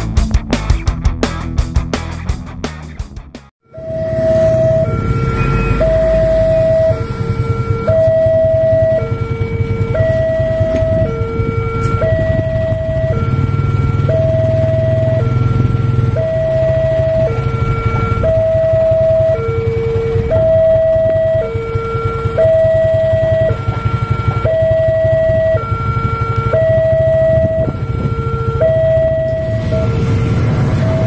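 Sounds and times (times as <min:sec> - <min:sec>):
two-tone level crossing alarm: 0:03.6 - 0:31.0
steady low rumble: 0:04.1 - 0:23.6.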